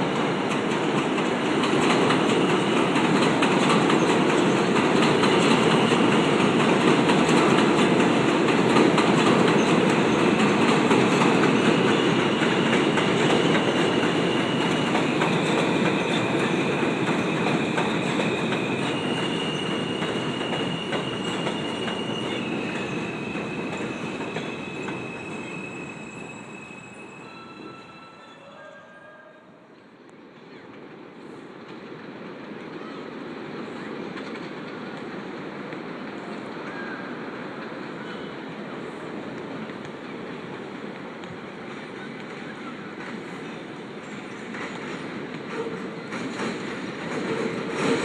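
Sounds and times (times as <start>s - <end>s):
subway train rumbling: 0.0s - 48.0s
high-pitched wheel squeal: 17.8s - 29.5s.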